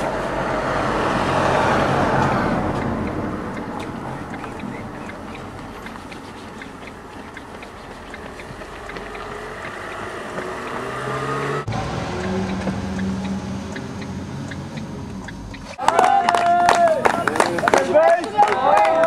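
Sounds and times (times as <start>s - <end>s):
van engine humming: 0.0s - 15.8s
faint regular ticking: 2.1s - 11.4s, 12.2s - 15.8s.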